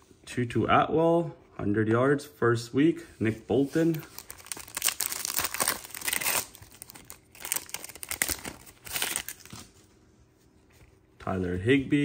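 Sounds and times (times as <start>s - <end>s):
foil wrapper crinkling and tearing: 3.8s - 9.7s.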